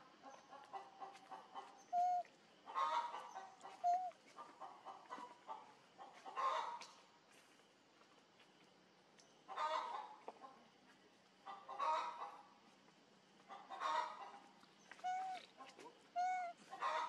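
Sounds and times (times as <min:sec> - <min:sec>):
chickens clucking: 0:00.0 - 0:07.0, 0:09.5 - 0:10.6, 0:11.4 - 0:12.4, 0:13.4 - 0:17.0.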